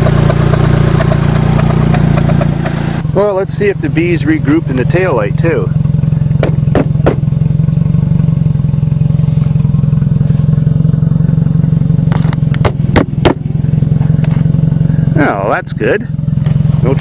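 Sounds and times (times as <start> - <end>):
car engine idling: 0.0 - 17.0
sharp knocks and clicks: 6.4 - 7.3, 12.1 - 13.4.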